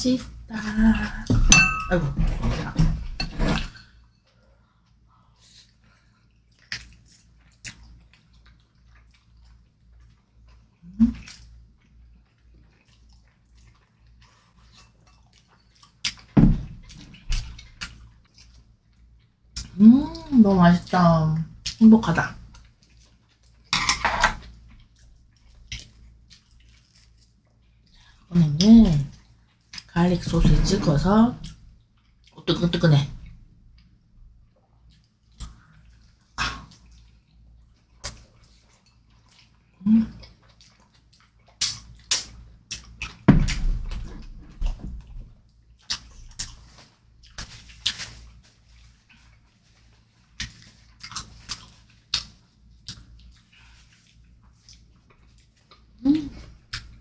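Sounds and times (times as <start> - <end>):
wet chewing and mouth noises: 3.3 - 23.7, 24.4 - 57.0
wet smacks or gulps: 50.3 - 57.0.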